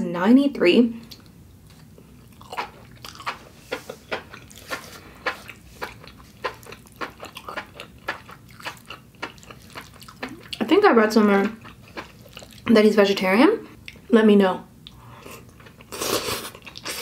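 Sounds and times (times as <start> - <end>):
person chewing noodles: 1.1 - 10.6, 11.5 - 12.7, 14.8 - 17.0.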